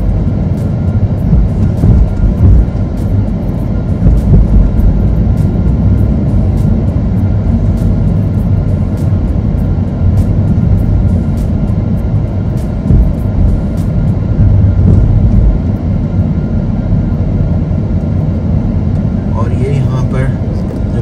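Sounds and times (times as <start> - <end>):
music playing: 0.0 - 16.4
car driving rumble: 0.0 - 21.0.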